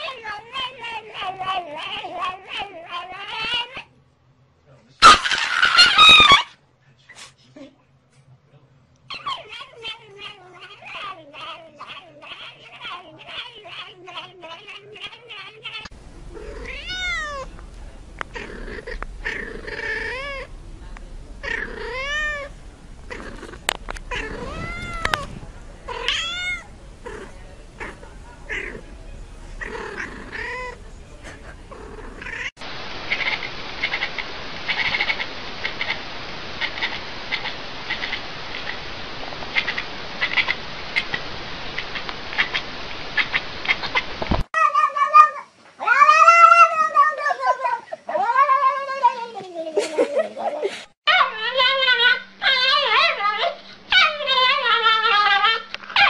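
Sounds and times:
cat meowing: 9.1s - 17.5s, 18.4s - 20.5s, 21.4s - 22.5s, 24.1s - 27.2s, 33.1s - 36.0s, 44.6s - 49.1s.

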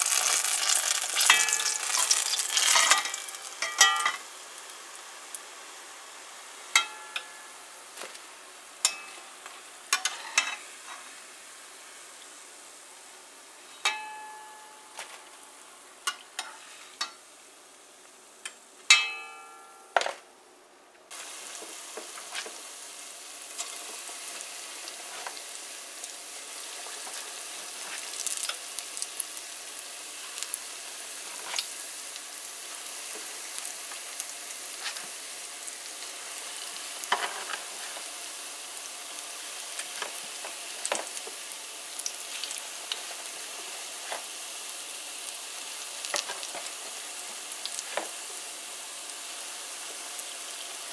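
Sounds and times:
deep-frying sizzle with pops: 0.0s - 19.8s, 21.1s - 50.9s
utensil clanging against pot: 2.8s - 4.2s.

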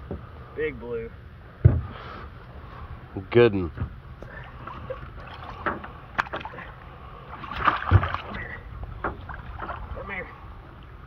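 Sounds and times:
sharp knocks: 1.6s - 1.9s
water splashing and sloshing: 3.7s - 11.0s
fish thrashing at the surface: 4.3s - 10.0s
splash with a thump: 7.4s - 9.8s.

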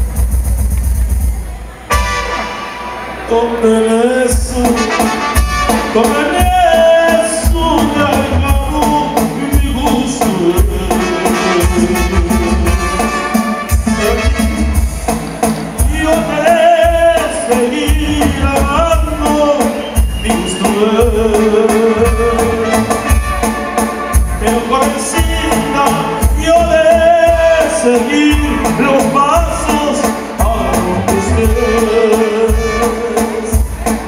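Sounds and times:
heavy pulsing bass beat: 0.0s - 2.2s, 4.3s - 19.6s, 20.3s - 34.0s
steady percussion: 0.0s - 3.0s, 4.3s - 34.0s
bending melodic lead line: 0.0s - 34.0s
live band playing through pa: 0.0s - 34.0s.

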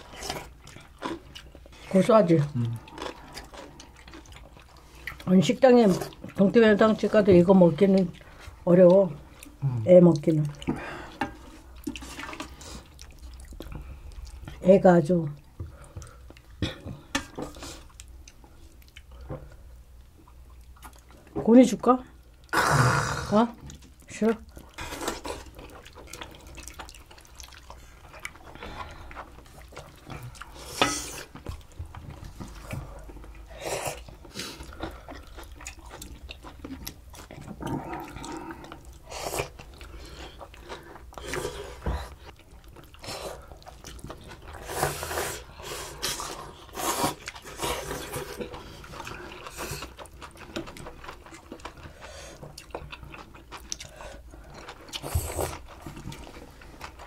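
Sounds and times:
chewing: 0.0s - 14.6s, 15.2s - 21.4s, 23.6s - 57.0s
slurping and sipping: 42.9s - 50.2s.

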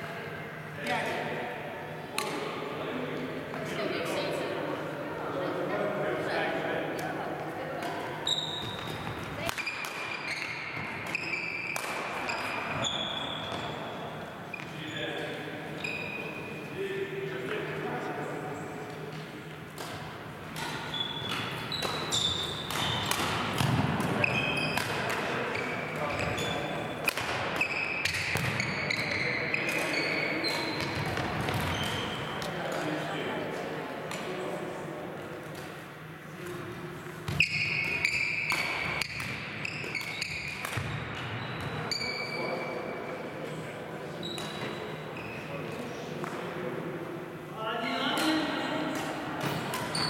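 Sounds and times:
shoes squeaking on wooden floor: 8.2s - 11.7s
shoes squeaking on floor: 8.2s - 15.2s, 15.8s - 16.6s, 20.8s - 23.2s, 24.2s - 27.0s, 27.6s - 32.4s, 37.3s - 40.6s, 41.2s - 42.9s, 44.2s - 45.7s, 49.5s - 50.0s
rackets striking shuttlecock: 8.6s - 12.5s, 19.7s - 26.4s, 27.0s - 32.9s, 37.2s - 41.3s.

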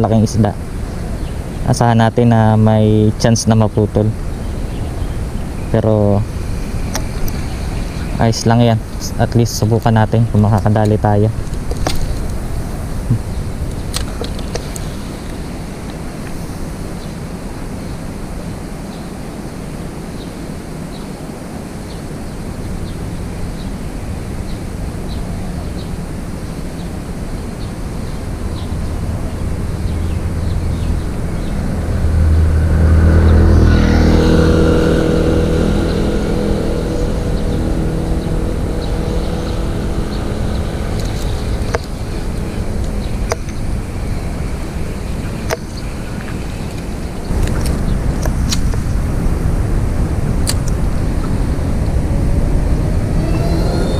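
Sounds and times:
low outdoor rumble: 22.2s - 53.9s
vehicle engine passing: 28.3s - 45.4s, 48.8s - 53.9s.

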